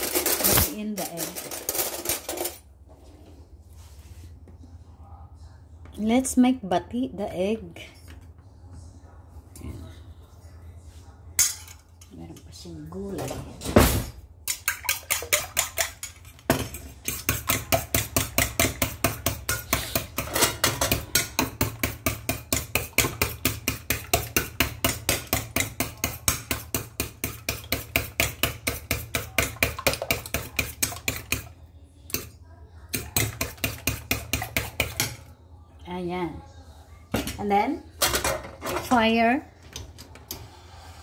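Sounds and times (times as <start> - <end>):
fork beating eggs in metal bowl: 14.4 - 32.3, 32.9 - 35.3.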